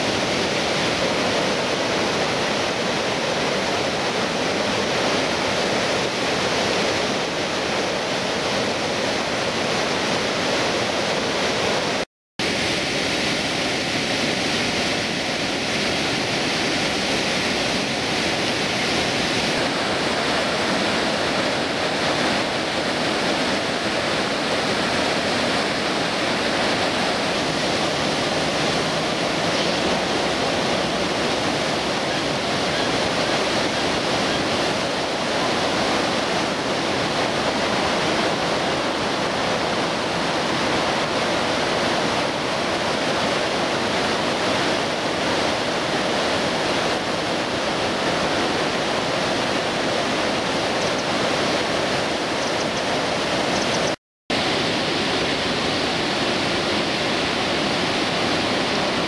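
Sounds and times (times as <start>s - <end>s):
river rushing over a weir: 0.0s - 59.0s.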